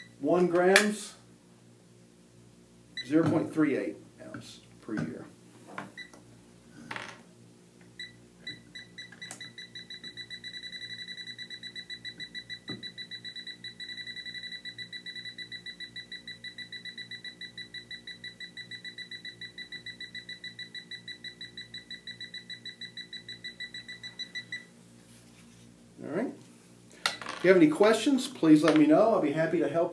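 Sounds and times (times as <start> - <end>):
high-pitched alarm beeps: 8.0 - 24.7.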